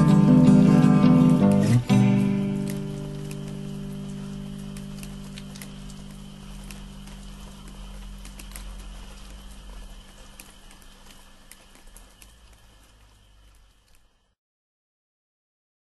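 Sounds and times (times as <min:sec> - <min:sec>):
low sustained song notes: 0:00.0 - 0:09.3
light hiss: 0:00.0 - 0:14.4.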